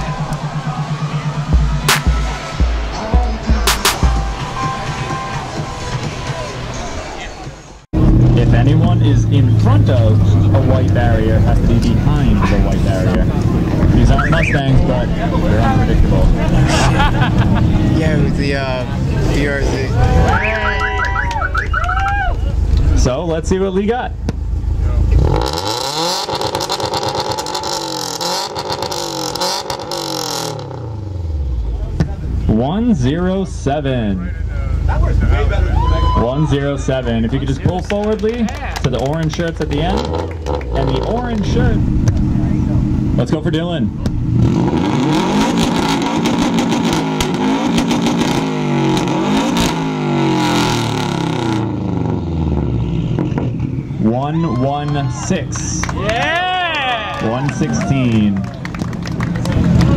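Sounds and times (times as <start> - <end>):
car engine revving hard: 8.0 - 20.5, 24.7 - 32.6, 39.6 - 53.8.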